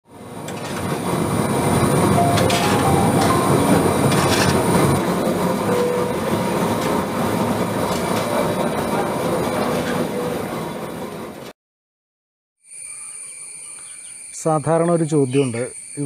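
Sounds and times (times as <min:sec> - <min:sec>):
mechanical rumble and rattle: 0:00.1 - 0:11.5
sharp clanks: 0:02.2 - 0:05.0.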